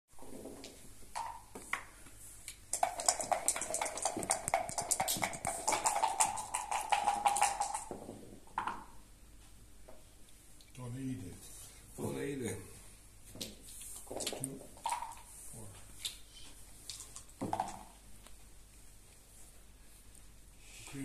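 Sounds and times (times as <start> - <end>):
dice rattling in a cup: 2.7 - 7.9, 14.1 - 15.3
game pieces clicking: 2.7 - 7.9.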